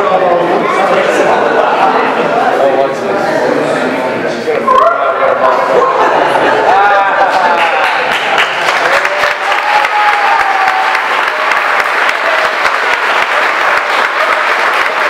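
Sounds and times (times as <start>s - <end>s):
crowd applauding: 6.6s - 15.0s.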